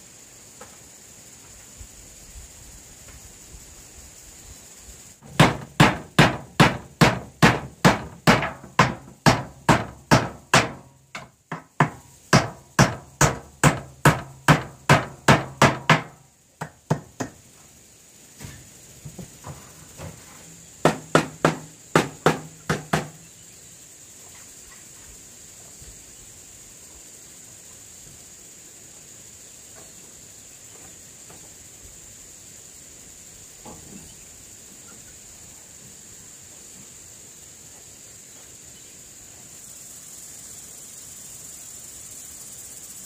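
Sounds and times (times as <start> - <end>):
hammer driving nails into metal: 5.3 - 16.1.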